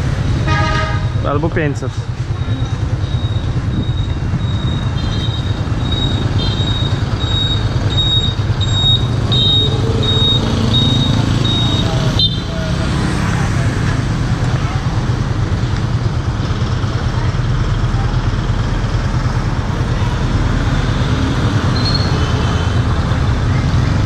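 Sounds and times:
bus passing: 0:01.9 - 0:24.0
motorbike passing: 0:02.1 - 0:24.0
high electronic beeps: 0:02.4 - 0:12.4.

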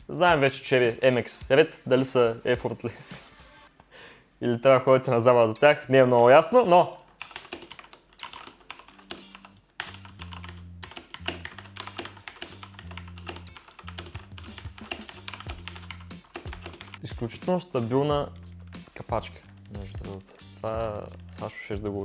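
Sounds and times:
background music with bass: 0:08.9 - 0:22.0.

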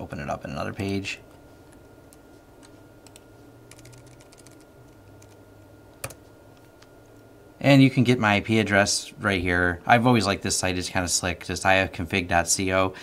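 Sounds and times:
typing on computer keyboard: 0:03.1 - 0:05.4.

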